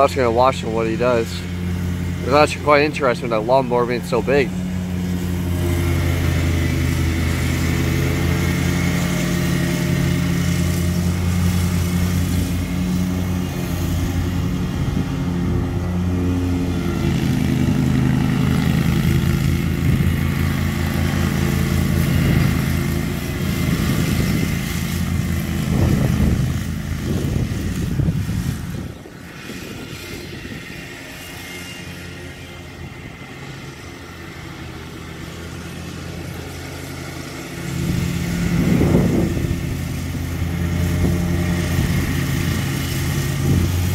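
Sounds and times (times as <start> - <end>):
riding mower engine running: 0.0 - 43.9.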